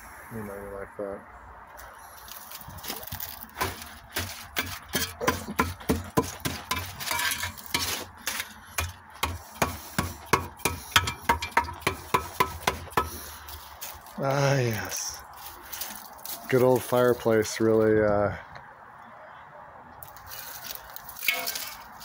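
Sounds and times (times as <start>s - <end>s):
stick knocking on concrete: 3.6s - 8.0s, 8.8s - 13.2s.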